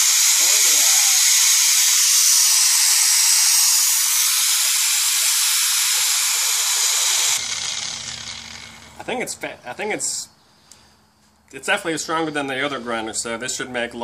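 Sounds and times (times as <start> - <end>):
angle grinder running: 0.0 - 9.2
grinder spinning down: 0.0 - 9.4.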